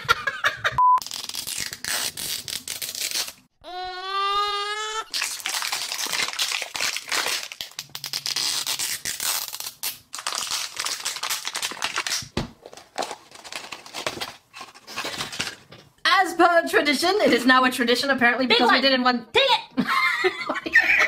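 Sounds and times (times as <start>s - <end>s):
plastic shrink-wrap crinkling: 1.0s - 3.4s, 5.1s - 15.6s.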